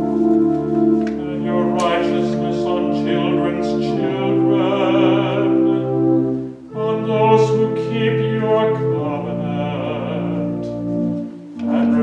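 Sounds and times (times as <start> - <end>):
church organ chords: 0.0 - 12.0
person singing a chant: 1.1 - 6.1, 6.7 - 10.8, 11.6 - 12.0.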